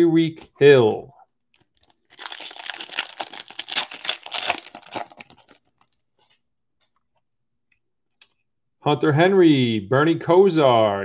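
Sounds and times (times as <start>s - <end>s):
wrapper tearing and crinkling: 1.5s - 6.4s.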